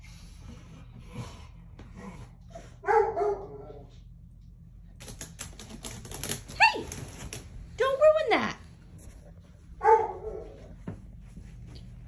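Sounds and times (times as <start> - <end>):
rapid clatter of clicks: 5.0 - 7.5.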